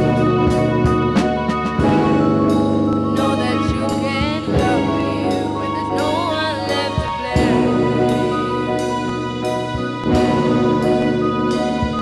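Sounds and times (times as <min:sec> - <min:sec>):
drum strikes: 0:00.0 - 0:12.0
electric guitars: 0:00.0 - 0:12.0
keyboard: 0:00.0 - 0:12.0
woman singing with vibrato: 0:03.1 - 0:08.8.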